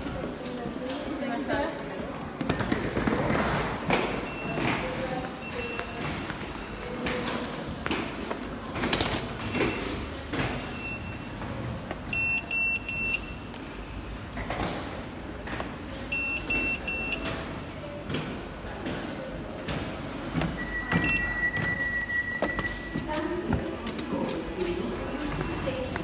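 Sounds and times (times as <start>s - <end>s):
station hall hum: 0.0s - 26.0s
card reader beeps: 3.9s - 7.5s, 9.2s - 14.2s, 16.0s - 17.4s, 20.4s - 23.1s.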